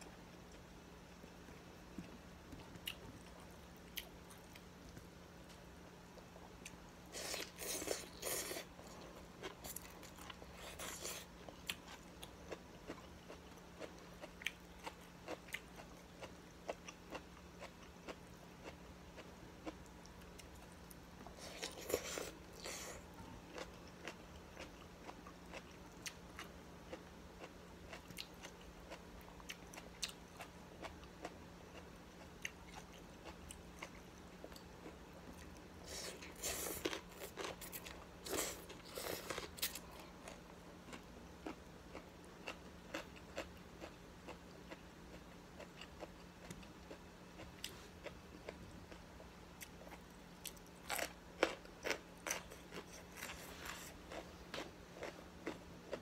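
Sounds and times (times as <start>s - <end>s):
chewing: 6.6s - 26.5s, 49.6s - 56.0s.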